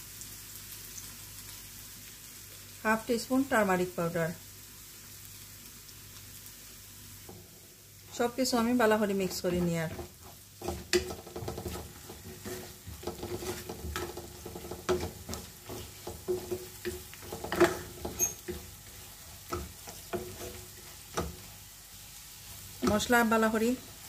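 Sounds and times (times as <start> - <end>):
onions sizzling in oil: 0.0 - 24.0
spatula scraping frying pan: 9.2 - 21.6
spatula knocking against pan: 12.9 - 18.6.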